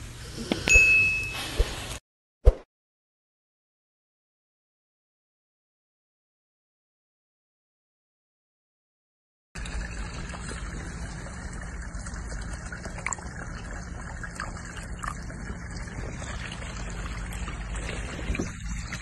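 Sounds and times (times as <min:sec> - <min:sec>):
water pouring between plastic cups: 0:09.6 - 0:19.0.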